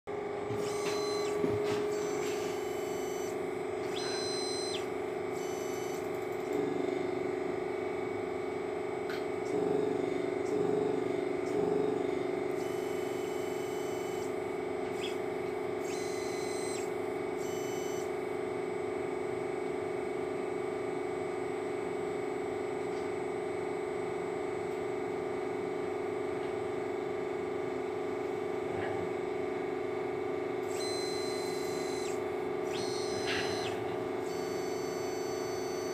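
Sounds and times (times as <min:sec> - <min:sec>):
electrical and mechanical hum: 0:00.1 - 0:35.9
motorized manipulator whines: 0:00.2 - 0:07.5, 0:11.5 - 0:18.4, 0:30.6 - 0:35.9.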